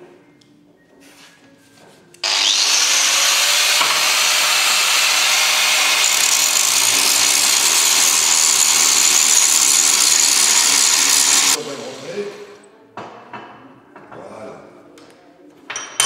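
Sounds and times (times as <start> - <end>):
angle grinder grinding metal: 2.2 - 12.5.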